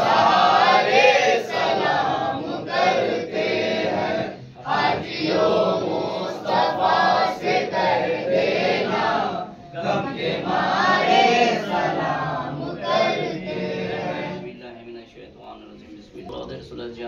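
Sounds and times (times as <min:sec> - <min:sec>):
men chanting together: 0:00.0 - 0:14.5.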